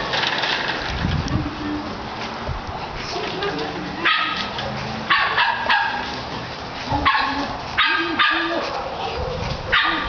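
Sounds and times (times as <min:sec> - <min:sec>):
dog barking high-pitched: 0:04.0 - 0:06.1, 0:07.0 - 0:10.0.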